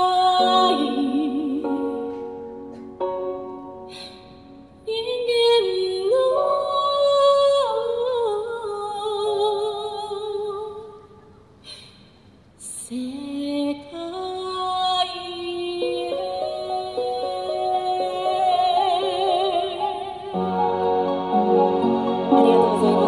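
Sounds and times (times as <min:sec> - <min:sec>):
woman singing with vibrato: 0:00.0 - 0:02.2, 0:04.8 - 0:11.0, 0:12.6 - 0:20.8, 0:22.0 - 0:23.0
instrumental backing music: 0:00.3 - 0:04.9, 0:16.1 - 0:23.0.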